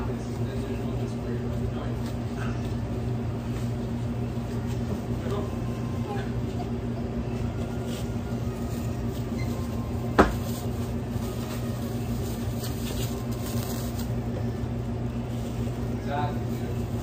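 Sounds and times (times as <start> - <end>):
electrical hum of kitchen equipment: 0.0 - 17.0.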